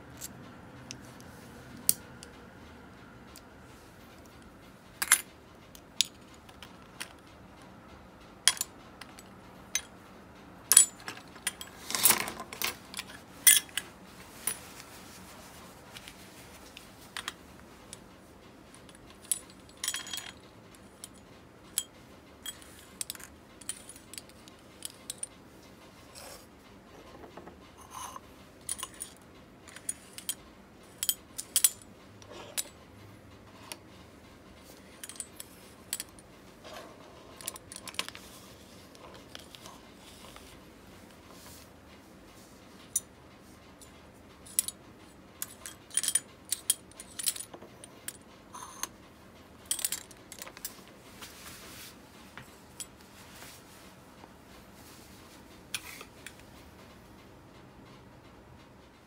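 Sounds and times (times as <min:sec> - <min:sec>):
small metal parts clicking: 0:45.4 - 0:48.9, 0:49.6 - 0:50.7.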